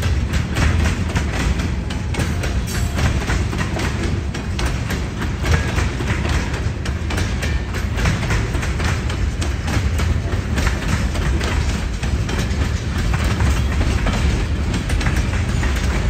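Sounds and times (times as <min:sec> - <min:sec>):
freight train rolling past: 0:00.0 - 0:16.0
steel wheels clicking over rails: 0:00.0 - 0:16.0.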